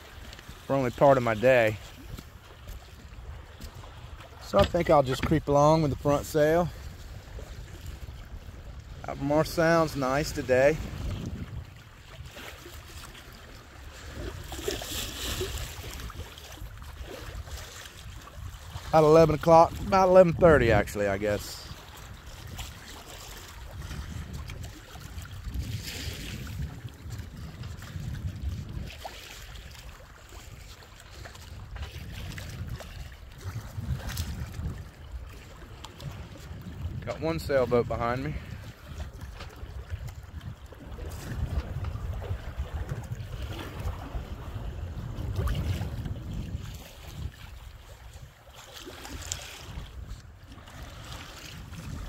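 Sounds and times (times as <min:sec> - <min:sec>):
water lapping along a hull: 0:00.0 - 0:52.0
wind rumbling on microphone: 0:00.0 - 0:52.0.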